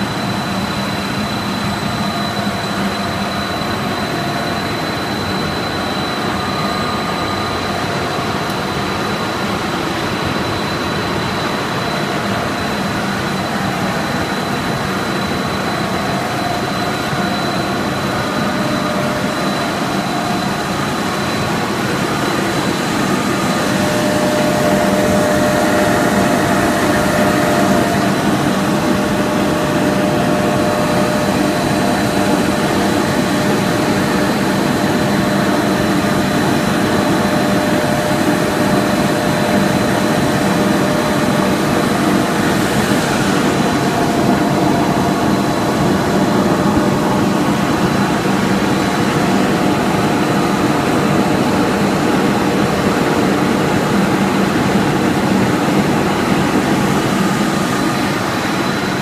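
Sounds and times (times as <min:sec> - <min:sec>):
high constant whine: 0:00.0 - 0:59.0
machinery drone: 0:00.0 - 0:59.0.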